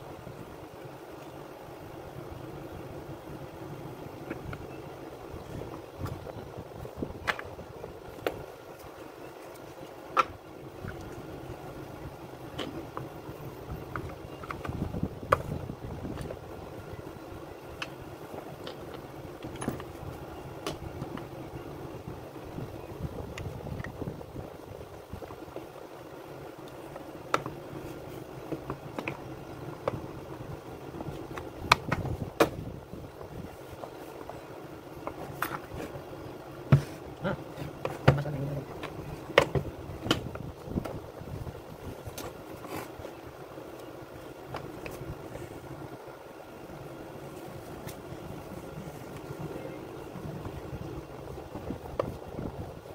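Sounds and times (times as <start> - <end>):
steady low hum: 0.0 - 52.9.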